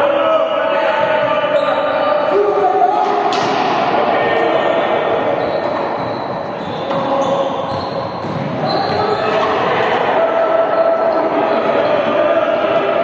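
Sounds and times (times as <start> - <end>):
balls bouncing on hard court: 5.4 - 9.7.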